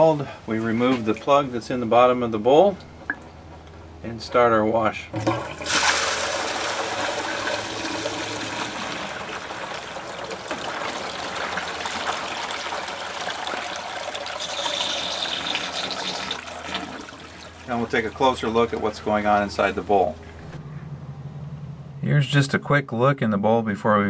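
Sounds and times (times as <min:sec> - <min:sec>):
low steady hum: 0:00.0 - 0:24.0
water rushing out of drain: 0:05.2 - 0:19.9.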